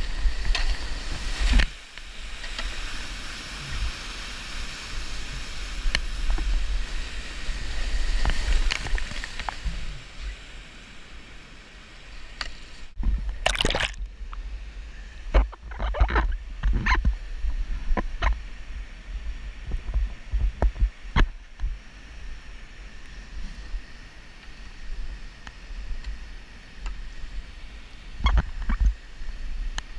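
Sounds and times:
paddle splashes: 0:13.3 - 0:14.0
water breaking over boat: 0:13.3 - 0:14.0.

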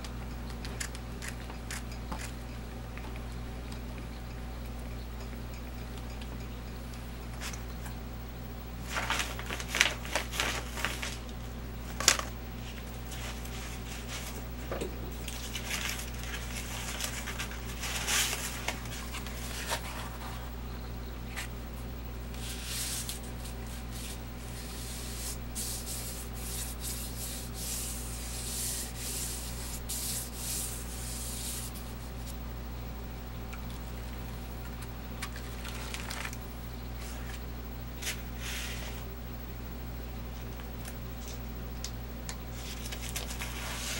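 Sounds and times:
low steady hum: 0:00.0 - 0:43.9
paper crinkling: 0:08.8 - 0:20.6, 0:33.7 - 0:36.4, 0:42.5 - 0:43.9
hands rubbing paper: 0:08.9 - 0:11.2, 0:15.2 - 0:20.5, 0:22.3 - 0:32.4, 0:42.6 - 0:43.9.

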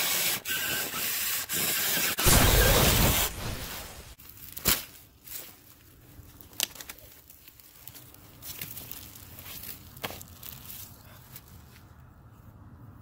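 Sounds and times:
explosion blast with deep rumble: 0:02.2 - 0:04.2
rustling in dry brush: 0:07.0 - 0:11.9.

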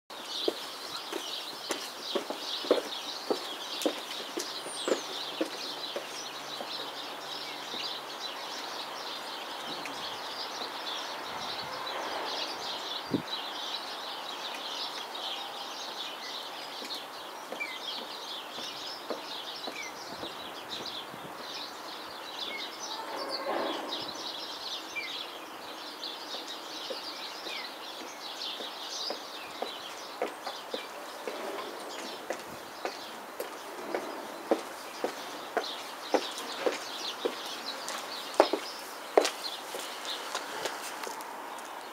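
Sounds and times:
small birds chirping: 0:00.1 - 0:41.9
footsteps on paving: 0:00.3 - 0:08.0, 0:16.8 - 0:21.0, 0:26.3 - 0:41.9.

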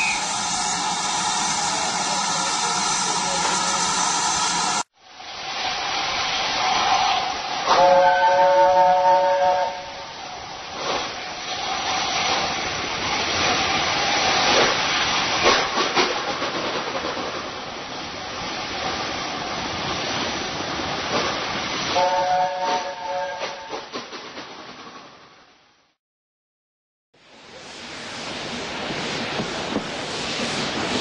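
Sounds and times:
steam locomotive chime whistle: 0:00.0 - 0:04.8, 0:07.7 - 0:10.0, 0:21.9 - 0:23.8
hiss of steam: 0:00.0 - 0:15.7, 0:27.3 - 0:31.0.

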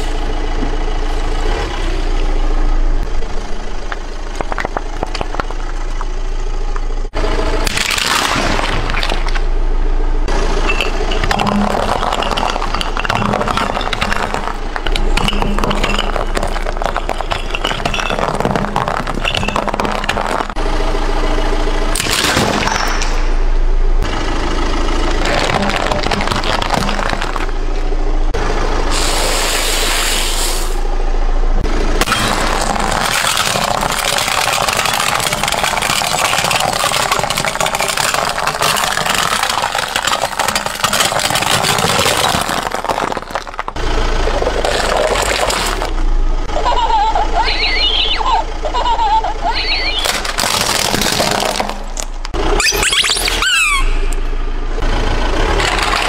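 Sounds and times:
car engine running: 0:00.0 - 0:56.0
tyres crushing objects: 0:03.1 - 0:06.4, 0:07.7 - 0:09.5, 0:10.3 - 0:20.6, 0:25.2 - 0:27.9, 0:32.0 - 0:46.0, 0:50.0 - 0:53.4.

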